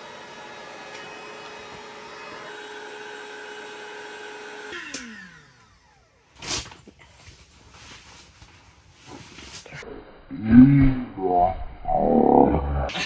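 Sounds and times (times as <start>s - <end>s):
electric air pump running: 0.0s - 7.0s.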